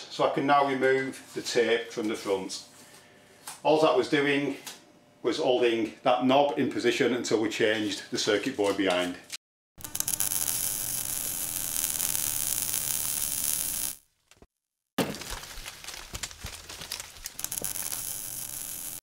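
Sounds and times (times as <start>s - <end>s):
hissing crackle: 9.8s - 14.0s, 16.8s - 19.0s
small clicks and crackles: 9.8s - 14.0s, 15.1s - 19.0s.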